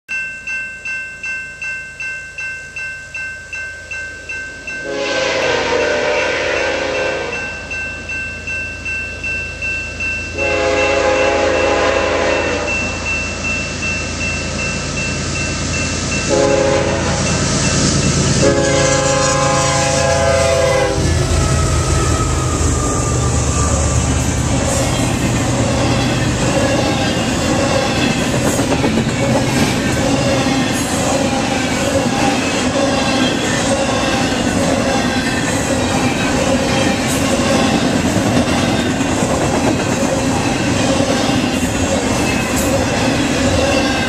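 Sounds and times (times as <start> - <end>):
crossing bell ringing: 0.1 - 44.0
locomotive horn blasts: 4.8 - 7.4, 10.4 - 13.0, 16.3 - 17.4, 18.4 - 21.9
train cars rolling by: 10.4 - 44.0
locomotive rumble: 10.5 - 44.0.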